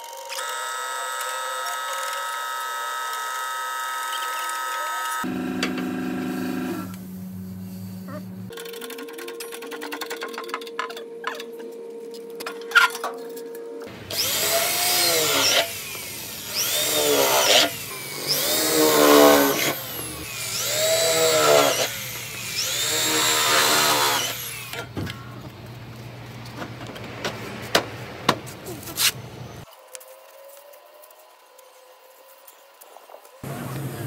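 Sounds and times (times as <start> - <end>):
electric drill boring into steel: 0.0 - 7.0, 13.9 - 24.9.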